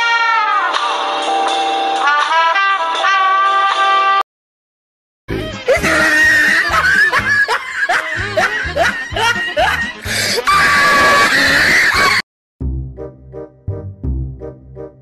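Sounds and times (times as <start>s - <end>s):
music with steady beat: 0.3s - 4.2s
woman screaming and laughing: 5.6s - 12.2s.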